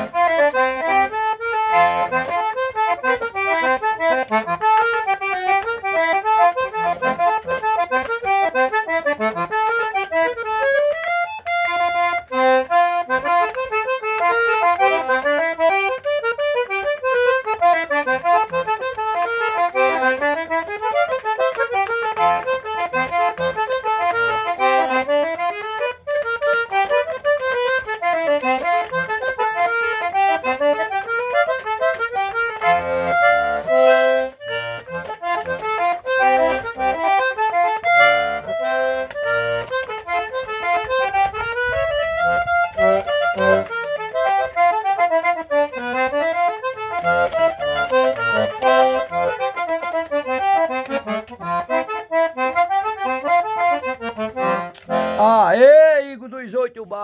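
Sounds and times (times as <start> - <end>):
button accordion playing: 0.0 - 57.0.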